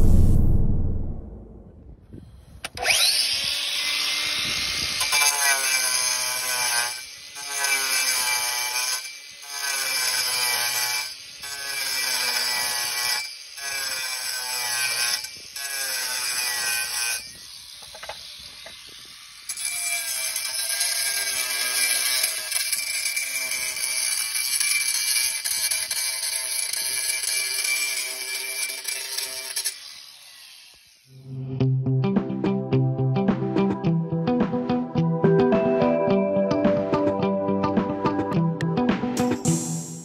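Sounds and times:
angle grinder grinding concrete: 2.7s - 31.4s.

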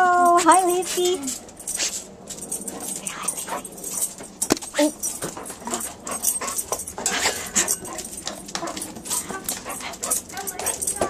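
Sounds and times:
dog sniffing: 0.6s - 11.0s
dog whimpering: 4.8s - 11.0s.

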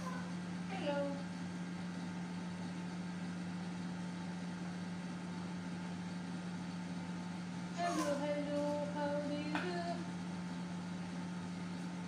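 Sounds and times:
steady low hum: 0.0s - 12.0s.

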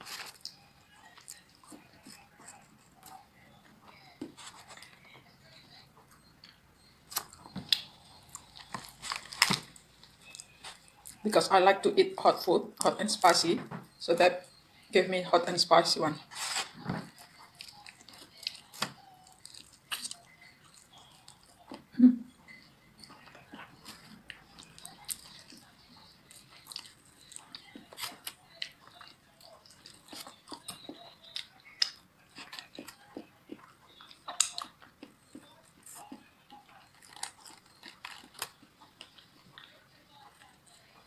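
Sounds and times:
chewing with wet smacks: 0.0s - 11.4s, 17.1s - 41.0s
crunching food: 6.2s - 11.3s, 16.3s - 21.9s, 22.5s - 41.0s.

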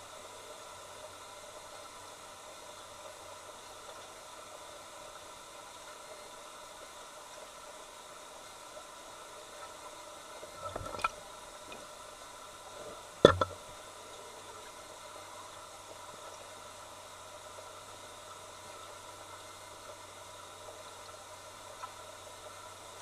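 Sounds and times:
small knocks: 13.2s - 13.6s.

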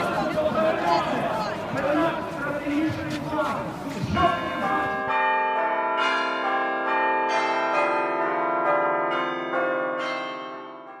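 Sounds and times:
bells ringing in a peal: 4.0s - 11.0s.

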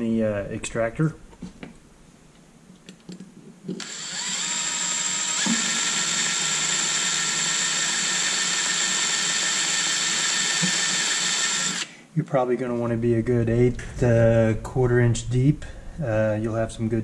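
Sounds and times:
cordless drill whining: 3.8s - 11.9s.

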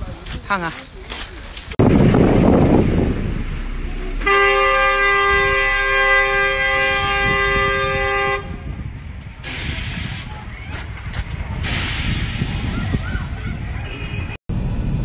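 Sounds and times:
loud rough rumble: 1.4s - 15.0s
two-tone vehicle horn: 4.2s - 8.7s, 13.8s - 14.4s.

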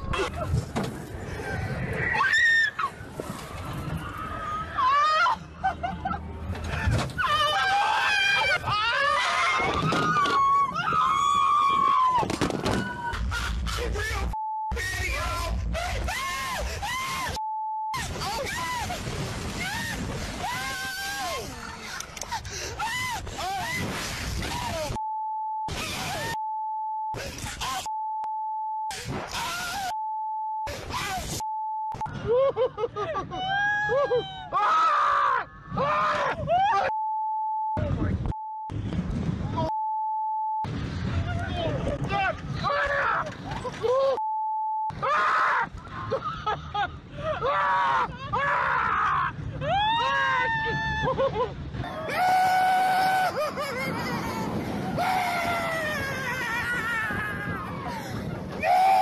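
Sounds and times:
people shouting and screaming: 1.3s - 5.6s, 6.7s - 17.4s, 18.1s - 21.9s, 29.3s - 30.0s, 32.1s - 37.0s, 41.1s - 44.2s, 44.9s - 59.0s
young women screaming: 2.1s - 2.9s, 4.0s - 5.4s, 7.2s - 13.2s, 47.4s - 51.4s, 52.0s - 58.0s
censor bleep: 39.6s - 40.7s
wind rushing over microphone: 50.5s - 59.0s.

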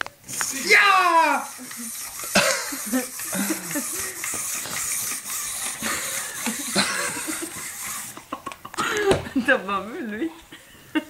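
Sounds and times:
people laughing and murmuring: 1.5s - 4.8s.

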